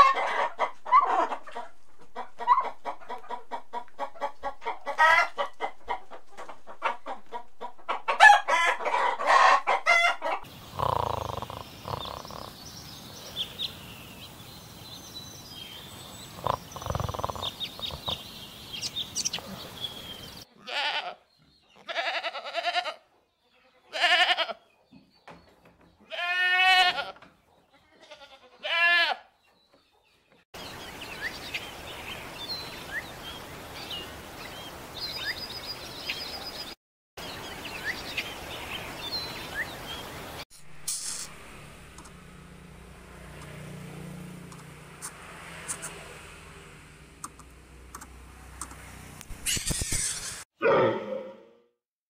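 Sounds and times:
small birds chirping: 10.4s - 20.5s, 29.4s - 41.3s, 47.2s - 50.4s
loud animal call: 10.5s - 12.6s, 16.3s - 18.3s, 49.4s - 51.6s
bird trill: 16.3s - 20.3s
falling bleat-like call: 20.6s - 21.2s, 21.8s - 23.0s, 23.9s - 24.6s, 26.1s - 27.2s, 27.9s - 29.2s
outdoor hiss: 37.2s - 41.6s
burst of hiss: 40.8s - 41.4s.

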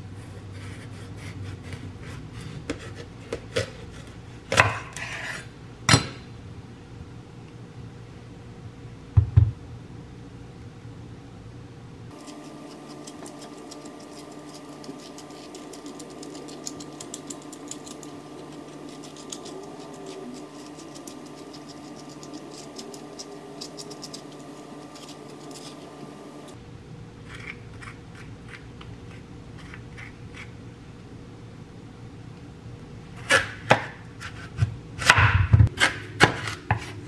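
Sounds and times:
spoon scraping melon: 4.8s - 5.5s, 12.1s - 26.2s.

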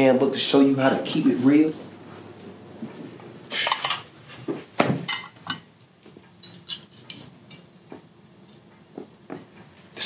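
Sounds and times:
silverware and plates clinking: 5.1s - 5.7s, 6.4s - 9.1s.

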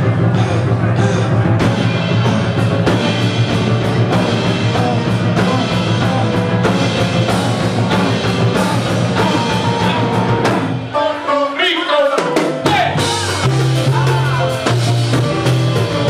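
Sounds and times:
drum hits: 0.0s - 10.9s
rock-jazz band with piano drums bass: 0.0s - 16.0s.

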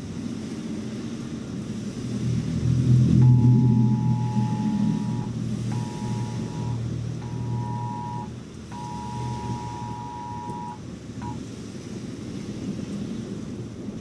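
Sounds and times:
rain hissing: 0.0s - 14.0s
thunder rumbling: 2.4s - 11.4s
phone alert two-pitch beeps: 3.2s - 11.4s.

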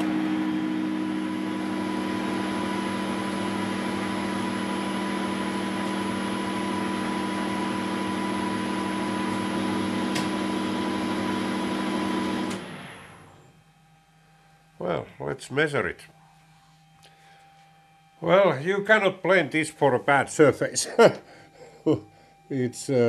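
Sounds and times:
metal lathe humming: 0.0s - 13.4s.

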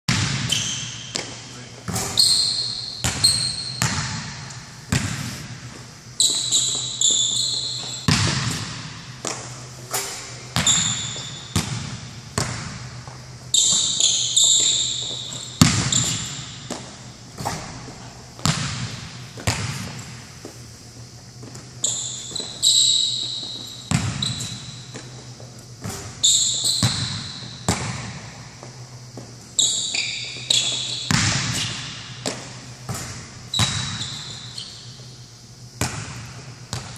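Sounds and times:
basketball bouncing on court floor: 0.1s - 9.6s, 10.5s - 20.5s, 21.4s - 34.4s, 35.8s - 36.9s
sneakers squeaking: 0.1s - 36.9s
steady low hum: 0.1s - 36.9s.

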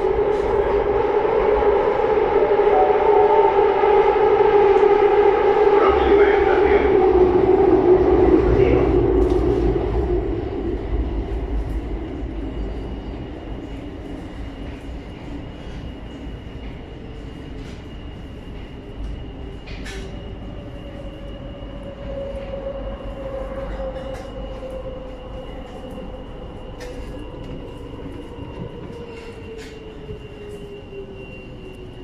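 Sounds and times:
train wheels rumbling on rail: 0.0s - 32.0s
clicks and creaks of train car: 18.6s - 20.2s.

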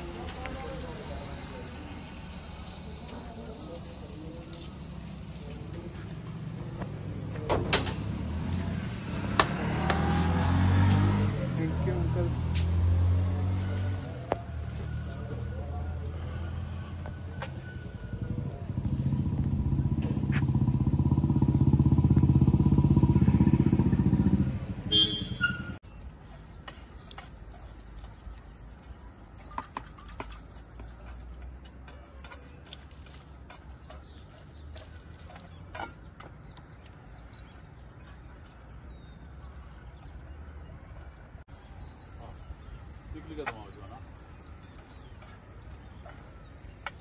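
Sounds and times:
vehicle engine running loudly: 7.8s - 25.8s.

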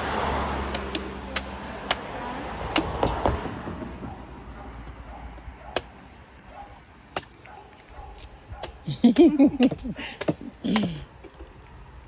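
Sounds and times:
machete chopping coconut husk: 0.6s - 3.4s, 8.6s - 11.0s.

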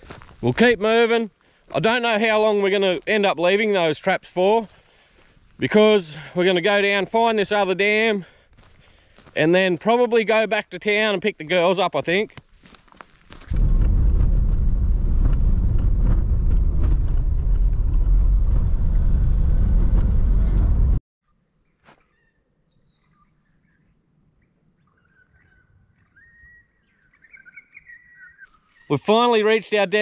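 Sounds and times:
vehicle rumbling on dirt track: 13.5s - 21.0s
faint bird calls: 21.8s - 28.9s.

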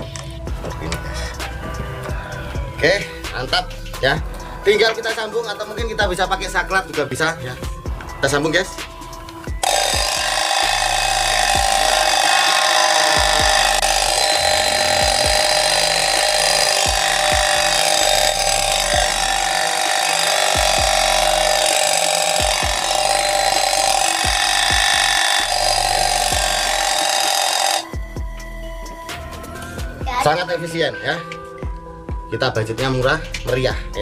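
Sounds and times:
loud mechanical buzz: 9.6s - 28.0s.

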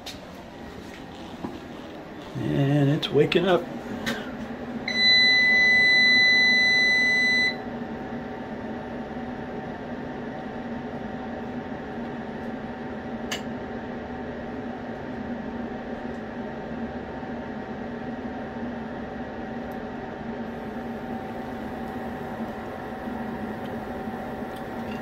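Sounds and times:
steady low hum: 0.0s - 25.0s
long steady buzzer beep: 4.8s - 7.7s.

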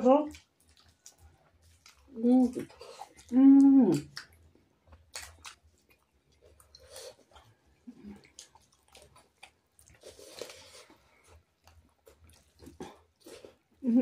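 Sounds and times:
people chewing food: 0.0s - 14.0s
wet mouth noises: 0.3s - 11.0s.

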